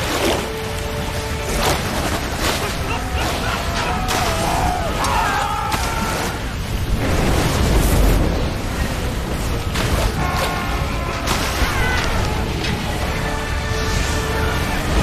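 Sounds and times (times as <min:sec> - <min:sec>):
booming blasts: 0:05.7 - 0:12.6.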